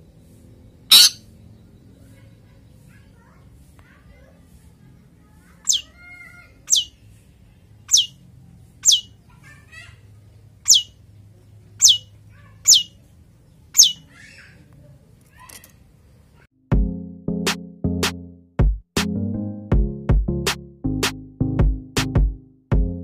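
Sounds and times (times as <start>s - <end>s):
bird chirps: 0.2s - 3.0s, 5.6s - 6.1s, 6.7s - 7.0s, 7.8s - 9.9s, 10.6s - 14.6s
shrike falling whistle calls: 0.9s - 1.2s.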